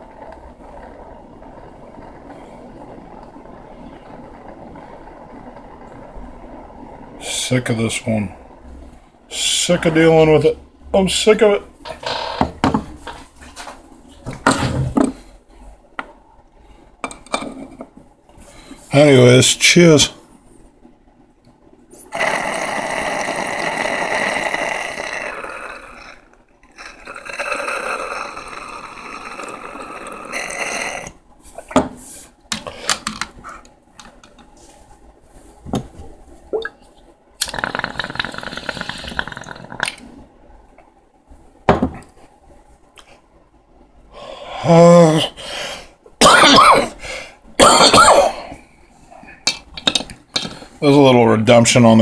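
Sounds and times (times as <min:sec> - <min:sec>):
water bubbling in glass pipe: 0:00.0 - 0:07.3, 0:22.1 - 0:31.2, 0:36.5 - 0:36.8, 0:37.4 - 0:40.1.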